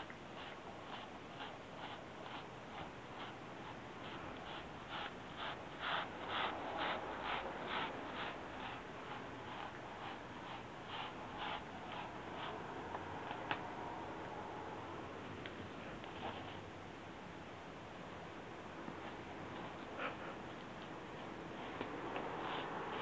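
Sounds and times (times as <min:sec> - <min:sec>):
cat tongue rasping on bristles: 0:00.0 - 0:13.6, 0:20.6 - 0:23.0.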